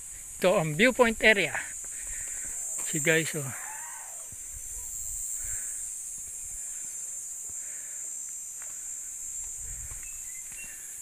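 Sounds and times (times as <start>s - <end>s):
high-pitched insect chorus: 0.0s - 11.0s
wind rumble on microphone: 9.5s - 10.2s.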